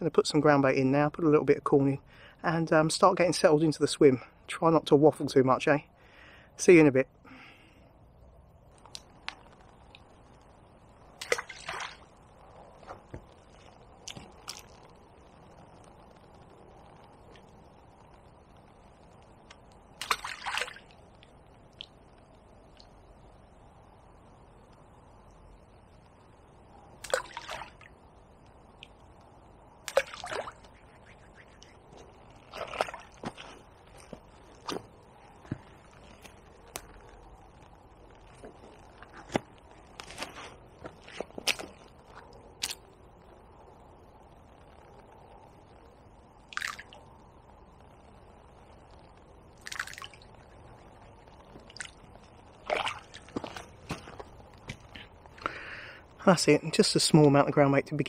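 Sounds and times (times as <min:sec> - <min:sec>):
bait splashing into water: 0:11.2 - 0:12.1, 0:20.0 - 0:21.0, 0:27.0 - 0:27.9, 0:29.8 - 0:31.2, 0:32.5 - 0:33.5, 0:46.5 - 0:47.0, 0:49.6 - 0:50.3, 0:52.6 - 0:53.8.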